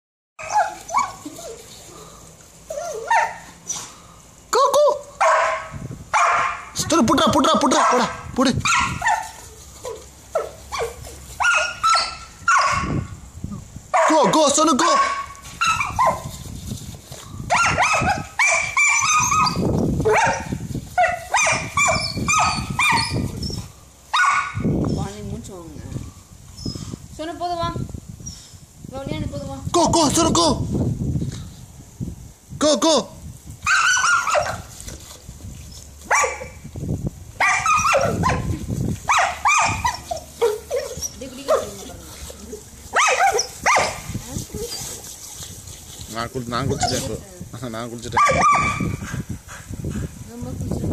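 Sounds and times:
dog yapping: 0:00.4 - 0:01.6, 0:02.7 - 0:03.9, 0:05.2 - 0:06.8, 0:07.8 - 0:13.0, 0:14.9 - 0:16.3, 0:17.5 - 0:24.7, 0:33.6 - 0:34.7, 0:36.1 - 0:36.6, 0:37.4 - 0:38.5, 0:39.1 - 0:45.0, 0:48.2 - 0:49.2.

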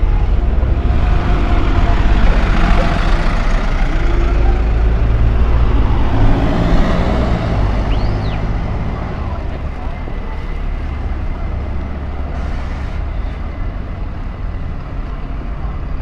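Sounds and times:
buses driving past: 0:00.0 - 0:16.0.

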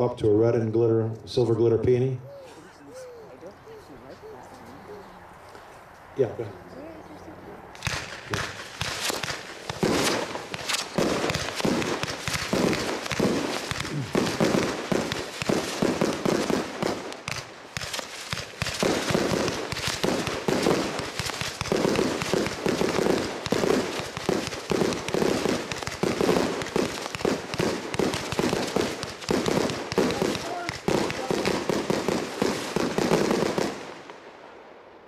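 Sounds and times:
fireworks launch thumps and bursts: 0:07.8 - 0:33.8.

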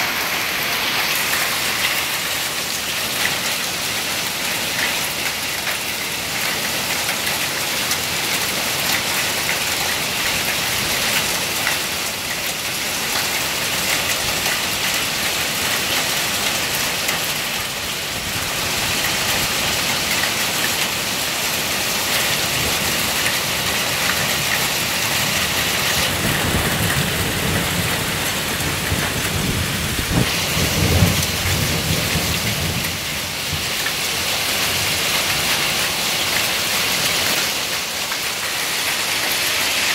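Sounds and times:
heavy rain and hail on lawn: 0:00.0 - 0:39.9
thunder rumbling: 0:26.0 - 0:33.7.

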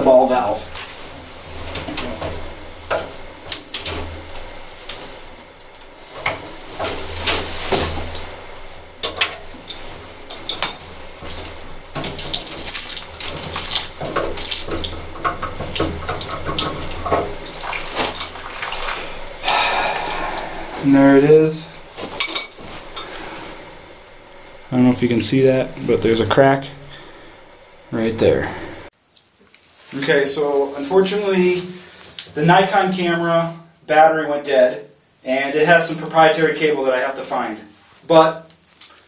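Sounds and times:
water trickling: 0:10.7 - 0:26.2.

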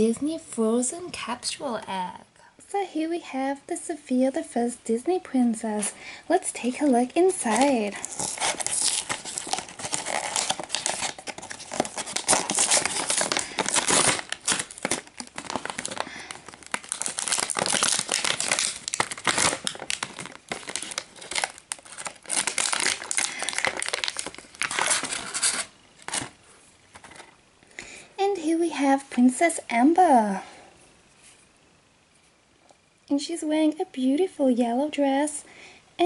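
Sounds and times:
stiff plastic packaging crinkling: 0:05.8 - 0:27.4.

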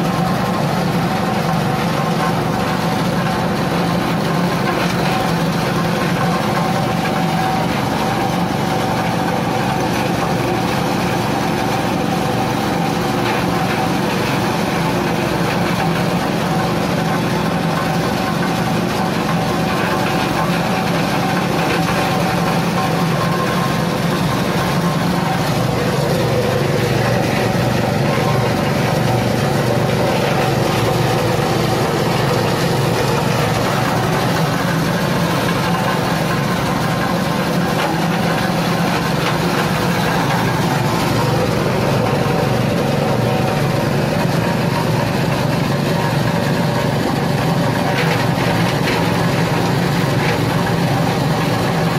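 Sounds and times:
shredder grinding husk: 0:00.0 - 0:51.9
small engine running: 0:00.0 - 0:51.9.

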